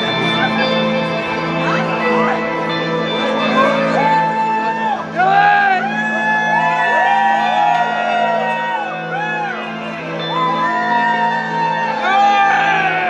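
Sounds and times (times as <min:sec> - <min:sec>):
crowd cheering and whooping: 0:03.7 - 0:13.0.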